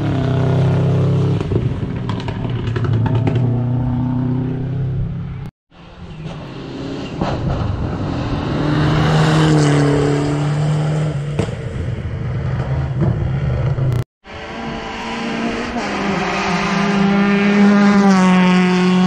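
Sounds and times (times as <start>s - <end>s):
rally car passing at speed: 5.8s - 19.0s.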